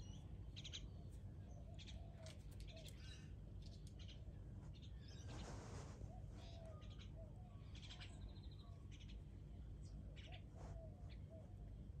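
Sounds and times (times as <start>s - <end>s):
soft rustle: 5.2s - 6.6s.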